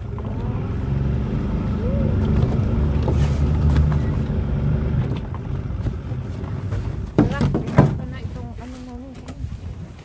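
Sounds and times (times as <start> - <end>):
small boat motor running: 0.0 - 7.2.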